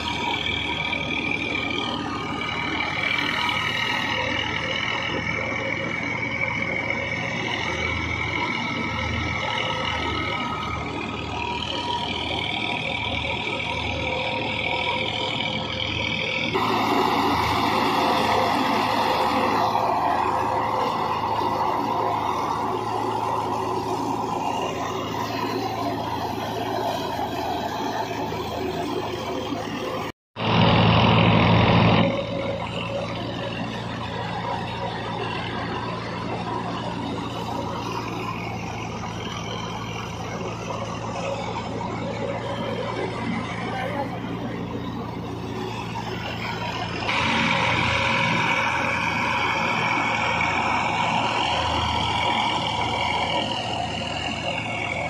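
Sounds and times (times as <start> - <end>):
low hum: 0.0 - 55.0
thresher drum and pulleys whirring: 0.0 - 55.0
tractor engine running under load: 0.0 - 55.0
loud rushing noise: 16.5 - 28.6.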